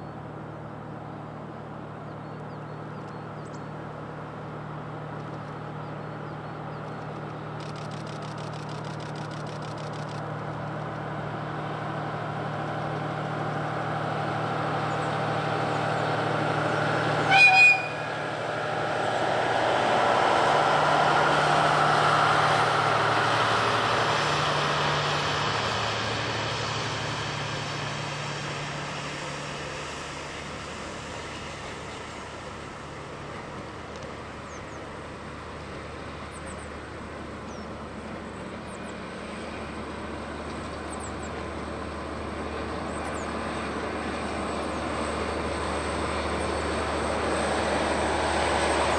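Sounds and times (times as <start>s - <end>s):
diesel train engine drone: 0.0s - 48.9s
train horn blast: 17.2s - 18.4s.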